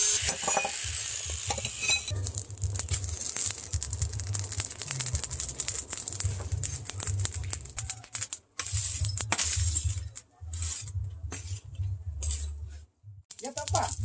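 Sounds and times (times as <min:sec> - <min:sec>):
charcoal clinking and rattling: 0:00.0 - 0:12.6
low rumble: 0:02.1 - 0:07.9, 0:08.8 - 0:14.0.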